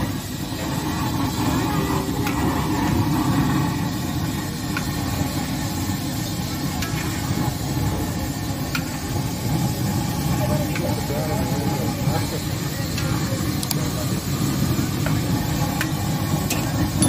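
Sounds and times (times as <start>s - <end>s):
deep-frying oil bubbling: 0.0s - 17.0s.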